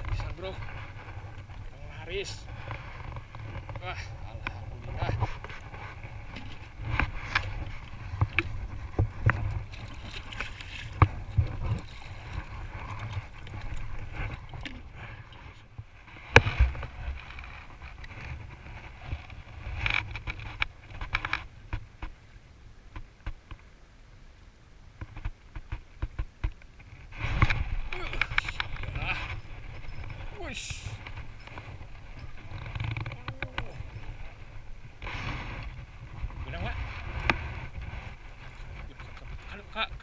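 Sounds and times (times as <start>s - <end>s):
wind on microphone: 0.0s - 22.1s, 25.0s - 40.0s.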